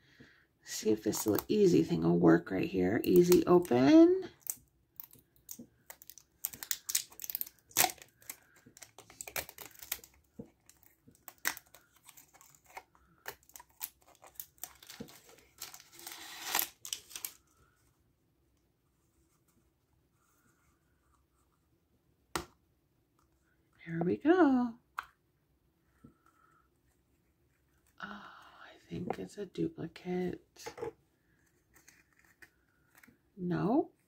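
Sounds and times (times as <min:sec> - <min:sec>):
plastic wrap crinkling: 0:04.3 - 0:17.5.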